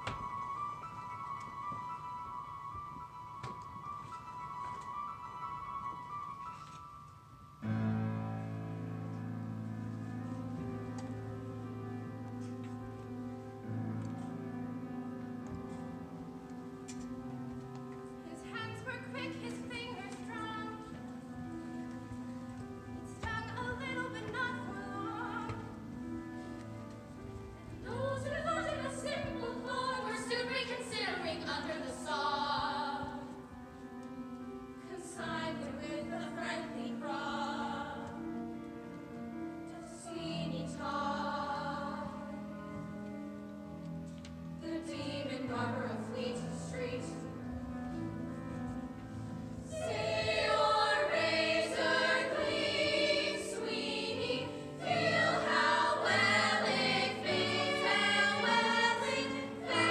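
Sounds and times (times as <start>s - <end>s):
musical theatre singing: 15.6s - 33.8s, 34.7s - 38.6s, 39.6s - 42.8s, 44.6s - 48.2s, 48.8s - 59.9s.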